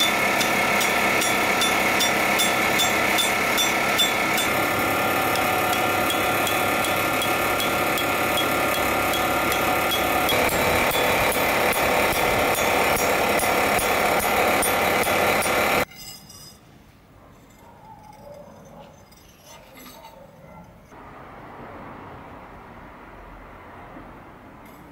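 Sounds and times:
machine running with held tones: 0:00.0 - 0:15.9.

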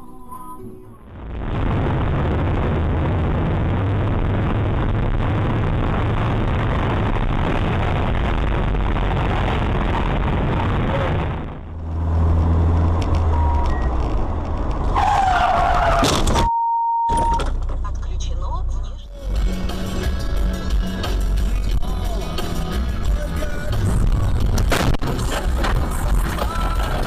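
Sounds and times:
car engine hum: 0:00.0 - 0:16.0, 0:17.2 - 0:27.0
car road and engine noise: 0:00.0 - 0:27.0
short beep: 0:16.4 - 0:17.5.

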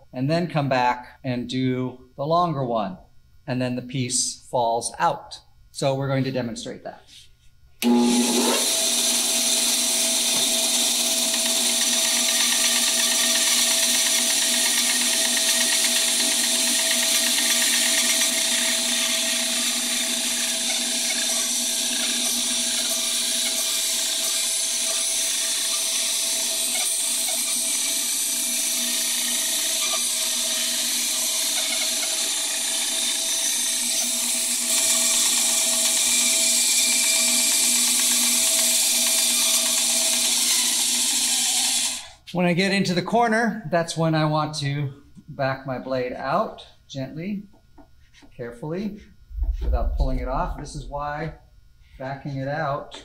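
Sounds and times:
band saw cutting wood: 0:07.8 - 0:42.2.

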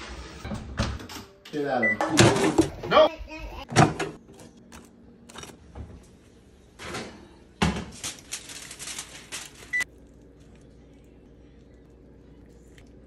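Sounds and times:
foil crinkling: 0:07.9 - 0:10.6.

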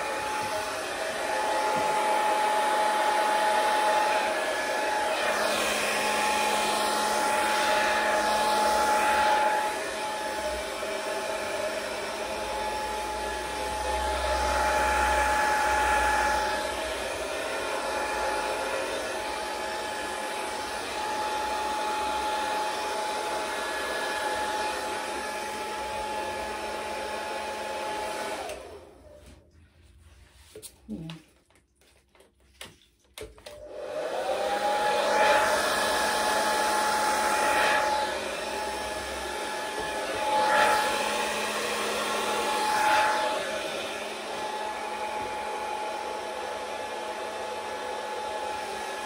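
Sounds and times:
hair dryer blowing: 0:00.0 - 0:29.4, 0:33.2 - 0:49.0.

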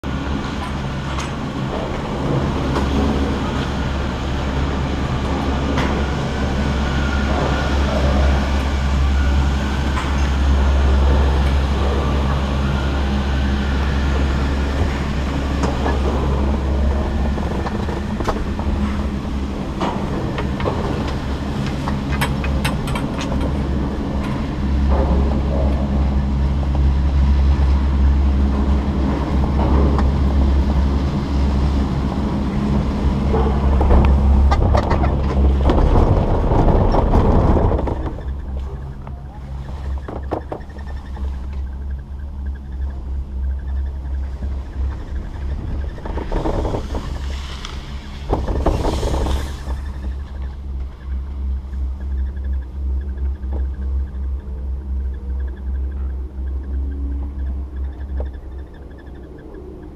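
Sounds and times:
chairlift machinery hum: 0:00.0 - 0:59.9
clicks and rattles of chair: 0:45.1 - 0:50.1.

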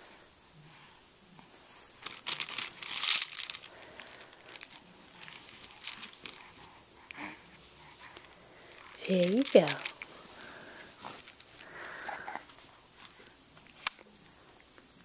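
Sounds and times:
plastic rings rustling and crinkling: 0:02.0 - 0:06.7, 0:07.8 - 0:15.0.

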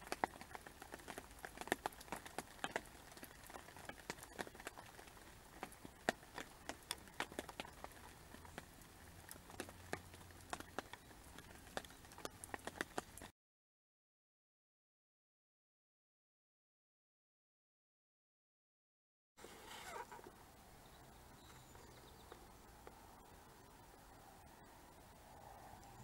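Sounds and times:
rain falling: 0:00.0 - 0:13.3, 0:19.4 - 0:26.0
raindrops ticking near microphone: 0:00.0 - 0:13.3, 0:19.4 - 0:26.0.

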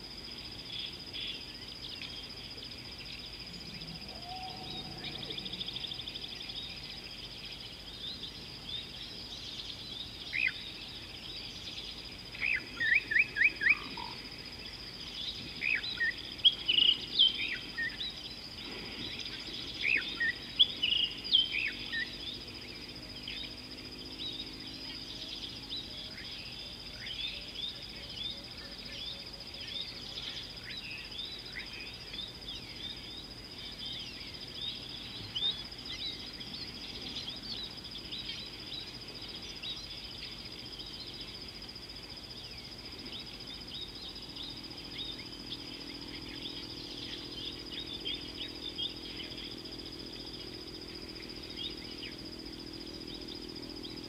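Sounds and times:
birds chirping and whistling: 0:03.6 - 0:06.9.

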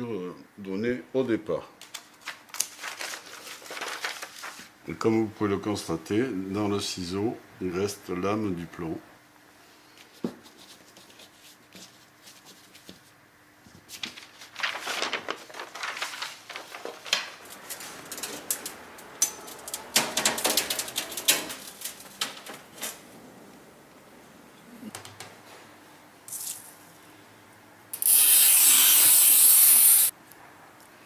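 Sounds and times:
glass sheets rattling and scraping: 0:14.8 - 0:23.1.

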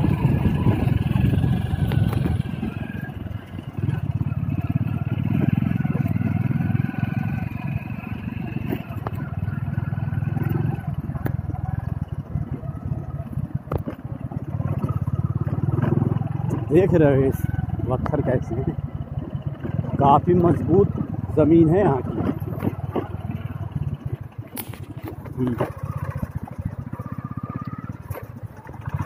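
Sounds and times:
motorcycle engines at low speed: 0:00.0 - 0:29.0.

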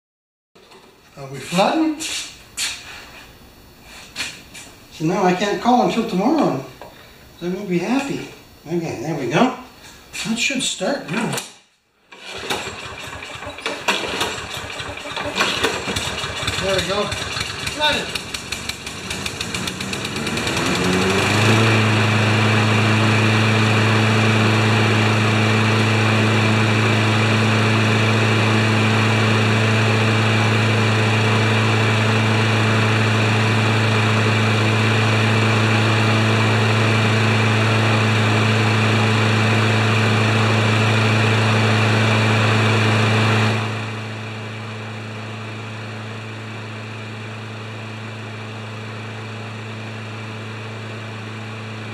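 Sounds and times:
lawn mower engine running: 0:12.1 - 0:51.9.

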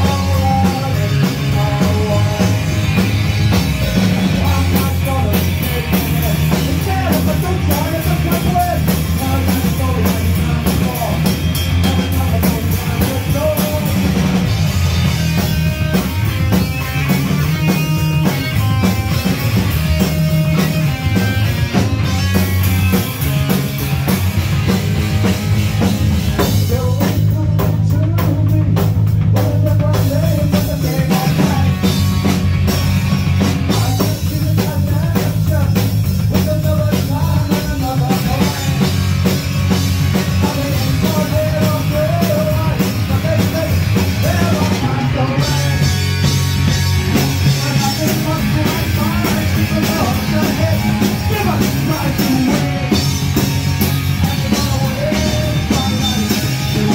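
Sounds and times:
person singing: 0:00.0 - 0:03.1, 0:03.8 - 0:14.4, 0:26.4 - 0:32.4, 0:33.6 - 0:39.0, 0:40.1 - 0:46.3, 0:47.1 - 0:56.9
punk rock band playing: 0:00.0 - 0:56.9.

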